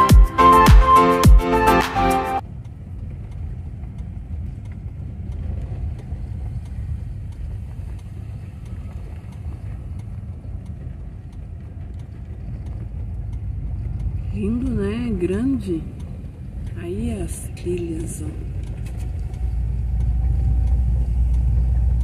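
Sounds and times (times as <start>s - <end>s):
van engine and road rumble: 0.0s - 22.0s.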